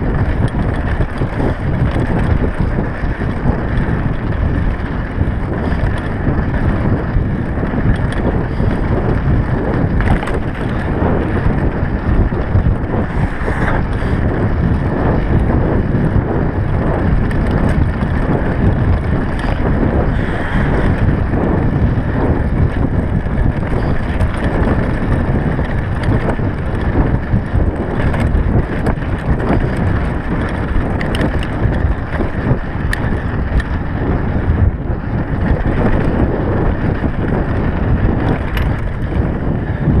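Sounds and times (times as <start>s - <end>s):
bike rattles and clicks: 0.0s - 40.0s
wind buffeting microphone: 0.0s - 40.0s.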